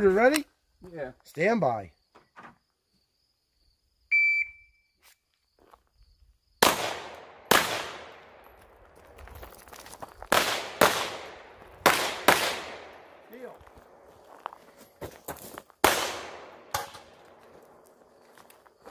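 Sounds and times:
shot timer beep: 4.1s - 4.8s
pistol shots echoing: 6.6s - 8.6s, 10.3s - 14.0s, 15.8s - 17.4s.

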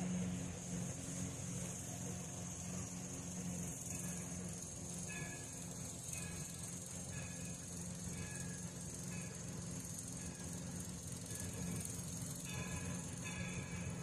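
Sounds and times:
locomotive bell ringing: 0.0s - 14.0s
steady high hiss: 0.0s - 14.0s.

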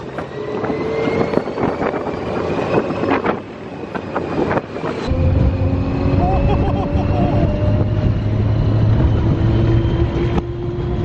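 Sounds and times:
ride vehicle running noise: 0.0s - 11.0s
wind rushing over microphone: 0.0s - 11.0s
low rumble with hum: 5.0s - 11.0s.

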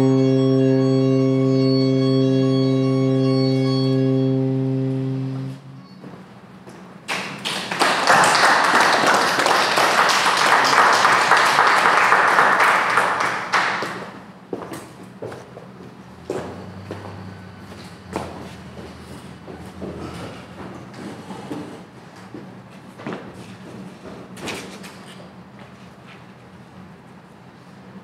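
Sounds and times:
saxophone low note: 0.0s - 6.0s
audience applauding: 7.1s - 14.2s.

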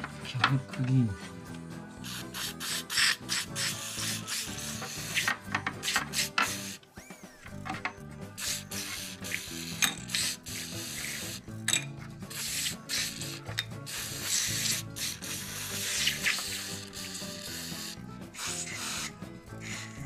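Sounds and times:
background music with bass: 0.0s - 20.0s
aerosol spray hissing: 2.0s - 6.8s, 8.2s - 11.6s, 12.2s - 20.0s.

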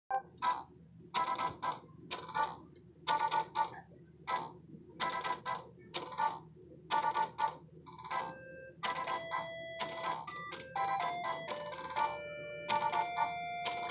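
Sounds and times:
toy tapping clicks: 4.3s - 13.9s
beeping electronic tune: 7.0s - 13.9s.

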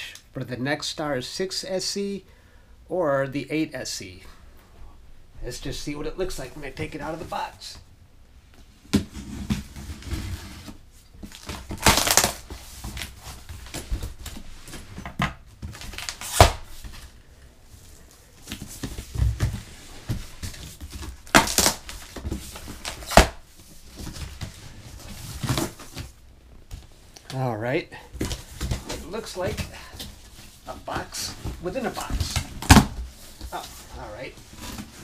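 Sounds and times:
packing tape tearing: 11.2s - 13.1s, 15.8s - 16.6s, 21.2s - 23.4s
cardboard flaps rustling: 17.8s - 27.0s, 28.1s - 35.0s.

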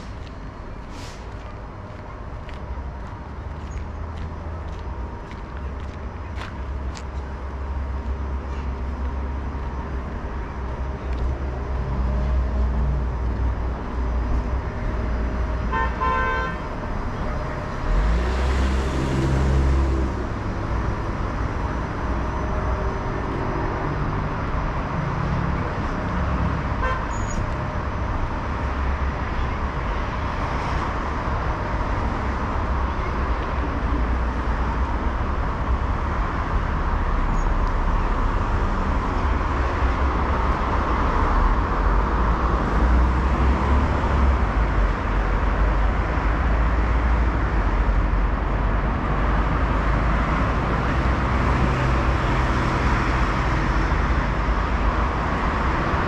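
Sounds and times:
street traffic rumble: 0.0s - 56.0s
car horn toot: 15.7s - 16.6s, 26.8s - 27.2s
vehicle passing close: 17.6s - 20.6s.

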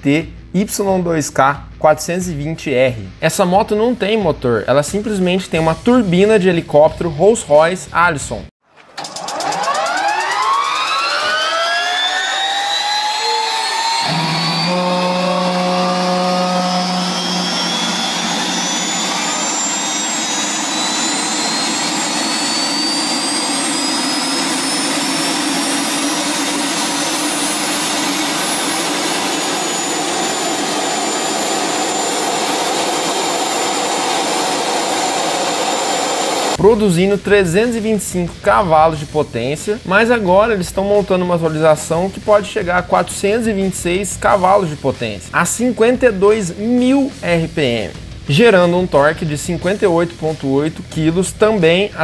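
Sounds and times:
turbine whine spooling up: 8.8s - 36.7s
deep steady tone: 12.2s - 33.8s.

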